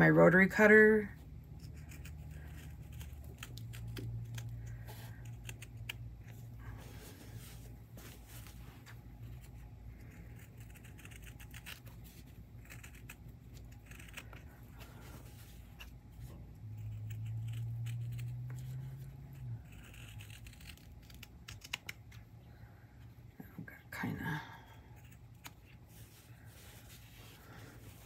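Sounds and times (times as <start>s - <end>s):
steady low hum: 0.0s - 28.0s
scissors snipping fabric: 1.5s - 6.4s, 9.3s - 14.8s, 15.7s - 22.2s.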